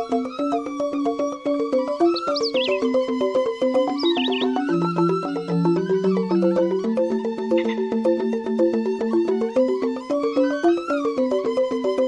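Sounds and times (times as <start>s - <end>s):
instrumental background music: 0.0s - 12.0s
high warbling chirp: 1.2s - 6.8s.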